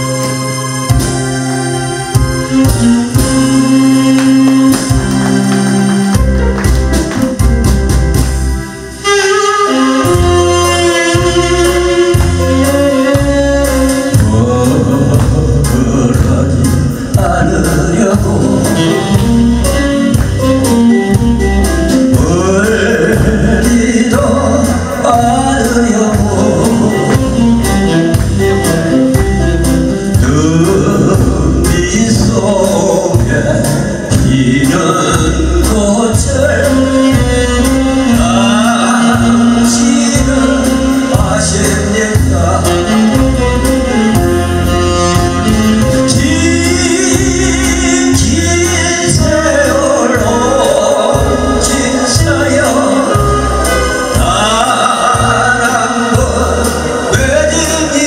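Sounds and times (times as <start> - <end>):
keyboard drums and electric guitar: 0.0 - 58.0
man singing: 2.4 - 6.5, 9.0 - 58.0.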